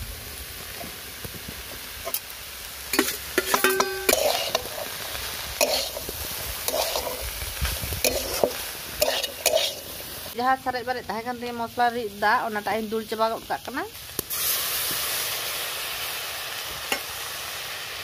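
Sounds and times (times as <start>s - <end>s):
food frying hiss: 0.0s - 18.0s
metal spatula scraping wok: 2.9s - 10.4s.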